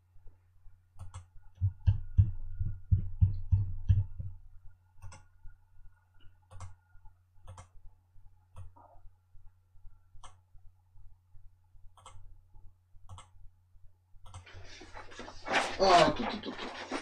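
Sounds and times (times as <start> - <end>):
low steady hum: 0.0 - 17.0
mouse and keyboard clicking: 1.0 - 1.3, 5.0 - 5.3, 6.5 - 6.8, 7.4 - 7.8, 10.2 - 10.4, 12.0 - 12.2, 13.1 - 13.3, 14.2 - 14.5.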